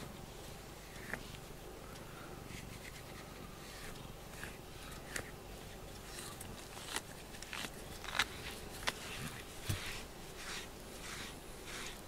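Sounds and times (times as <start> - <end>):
brush stroking cat fur: 2.5 - 12.0.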